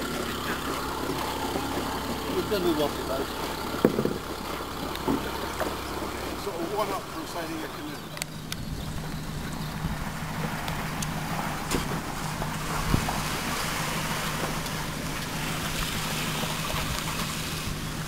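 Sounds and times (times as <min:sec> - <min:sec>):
low engine hum: 0:00.0 - 0:18.0
wind: 0:00.0 - 0:18.0
rippling water: 0:09.0 - 0:18.0.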